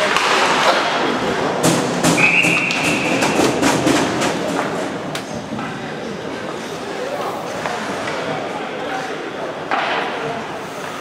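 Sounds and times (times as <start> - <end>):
hockey sticks and puck clacking: 0.0 - 5.8, 9.6 - 11.0
referee's whistle: 2.2 - 3.4.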